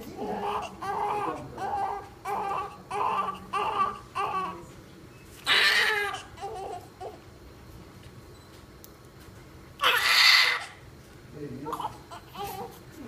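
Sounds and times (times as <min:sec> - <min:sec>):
newborn baby crying: 0:00.2 - 0:04.6, 0:05.4 - 0:07.2, 0:09.8 - 0:10.8, 0:11.7 - 0:12.8.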